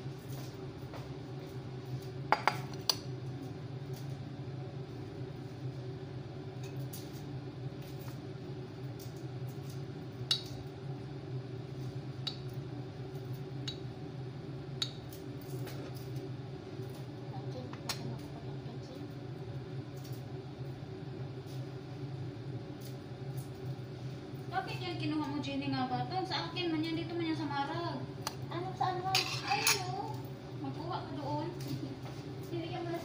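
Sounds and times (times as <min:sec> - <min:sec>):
dishes and utensils clinking: 0:29.1 - 0:30.0.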